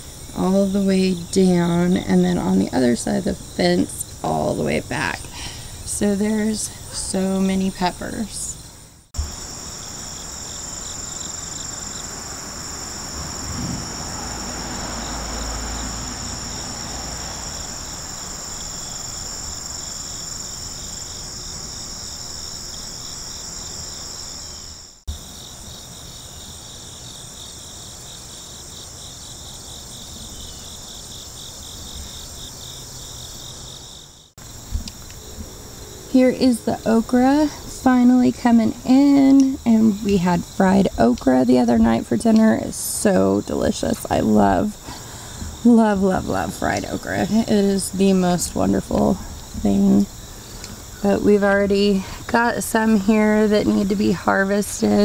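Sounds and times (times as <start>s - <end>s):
insects trilling: 0.0s - 55.0s
faster pulsing insect trill: 7.1s - 40.8s
low rumble: 13.0s - 17.5s.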